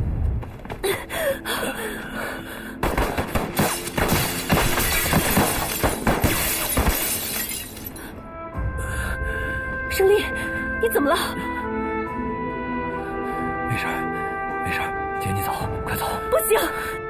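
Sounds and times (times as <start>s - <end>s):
gunshots: 2.8s - 7.0s
glass shattering: 3.5s - 8.0s.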